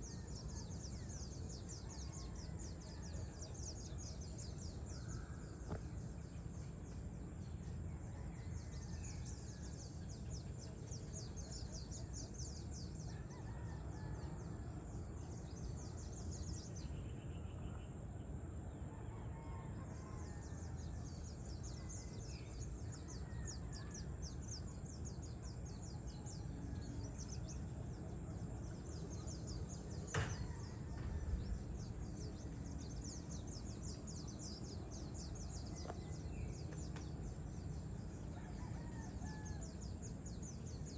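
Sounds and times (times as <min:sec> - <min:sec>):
distant bird calls: 0:26.8 - 0:40.9.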